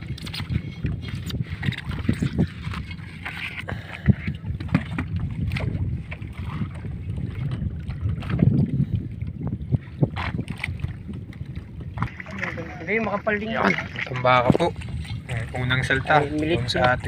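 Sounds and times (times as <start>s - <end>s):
net and floats knocking on hull: 4.6s - 8.6s.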